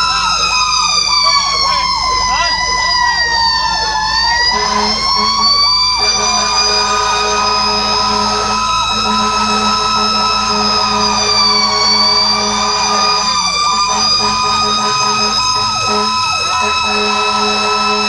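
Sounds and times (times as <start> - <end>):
siren sweeping up and down: 0.0 - 18.0
steady high siren tone: 0.0 - 18.0.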